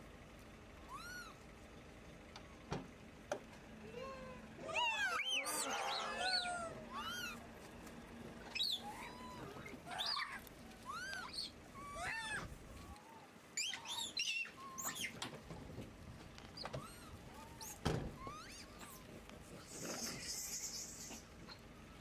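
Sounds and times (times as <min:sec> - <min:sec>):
monkeys cooing: 0:03.9 - 0:07.5, 0:08.5 - 0:15.2, 0:16.7 - 0:21.6.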